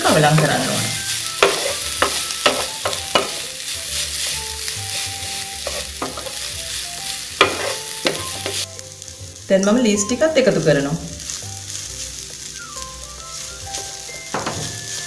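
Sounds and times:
food sizzling in frying pan: 0.0 - 15.0
spatula knocking against pan: 1.4 - 3.4, 7.4 - 8.6, 14.3 - 14.7.

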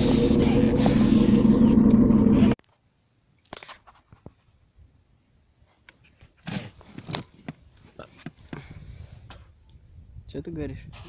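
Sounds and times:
engine humming: 0.0 - 2.6.

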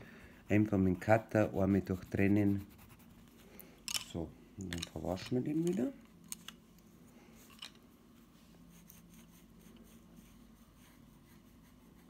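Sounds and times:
faint steady hum: 0.0 - 12.0
paintbrush on wooden board: 0.5 - 3.2, 8.2 - 12.0.

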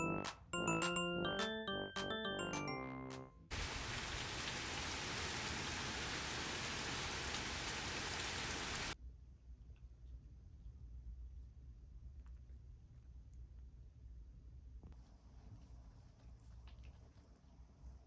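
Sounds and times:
steady rain falling: 3.5 - 9.0.

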